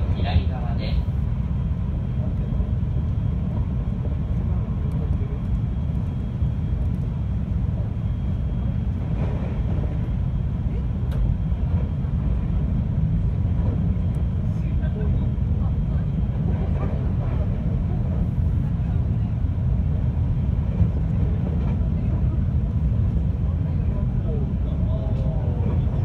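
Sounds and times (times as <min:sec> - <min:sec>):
train wheels rumbling on track: 0:00.0 - 0:26.0.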